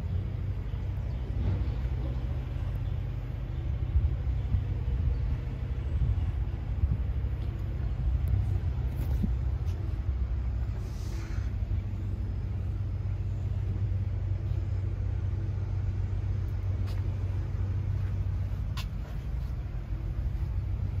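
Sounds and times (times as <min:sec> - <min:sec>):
excavator diesel engine idling: 0:00.0 - 0:21.0
brief hiss: 0:10.8 - 0:11.6.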